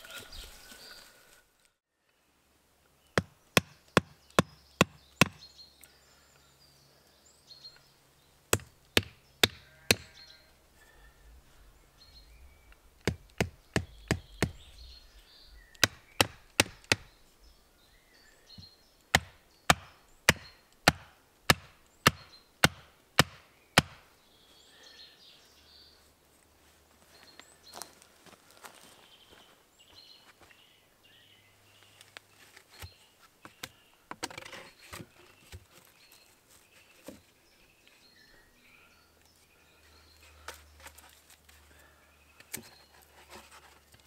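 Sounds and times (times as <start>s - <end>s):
hatchet striking wooden stake: 3.2s - 5.5s, 8.5s - 10.1s, 13.0s - 14.7s, 15.8s - 17.2s, 19.1s - 24.1s.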